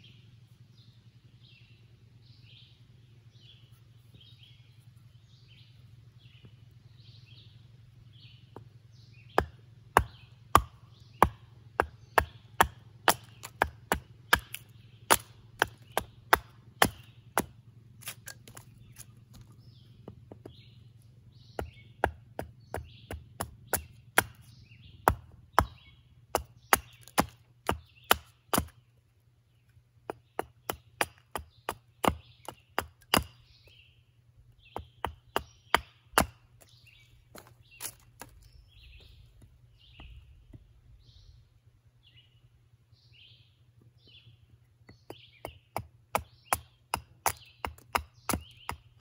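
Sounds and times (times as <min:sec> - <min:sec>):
axe chopping wood: 0:08.5 - 0:20.8, 0:21.5 - 0:28.8, 0:30.0 - 0:33.8, 0:34.6 - 0:40.6, 0:44.8 - 0:49.0.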